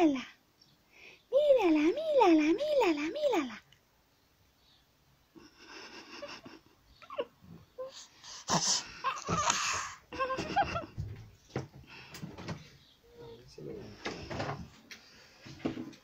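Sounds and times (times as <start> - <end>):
baby cooing and squealing: 7.1 - 10.4
baby breathing hard: 7.9 - 10.1.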